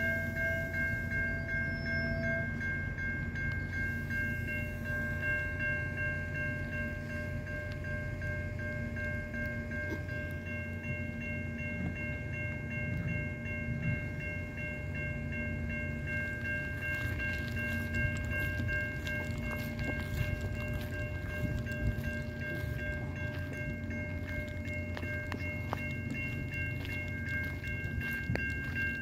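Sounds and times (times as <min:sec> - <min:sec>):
crossing bells ringing: 0:00.0 - 0:29.0
train cars rumbling past: 0:00.0 - 0:29.0
train wheel clicks: 0:16.2 - 0:29.0.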